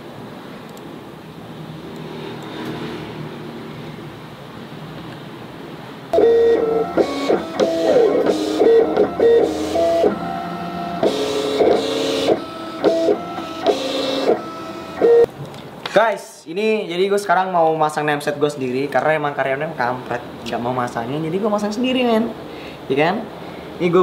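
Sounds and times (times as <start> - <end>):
cutting plotter motors whining: 6.2 - 15.3.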